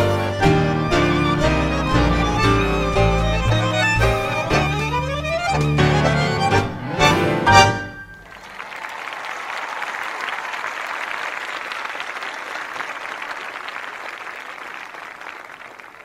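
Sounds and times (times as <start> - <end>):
audience applauding: 7.6 - 16.0.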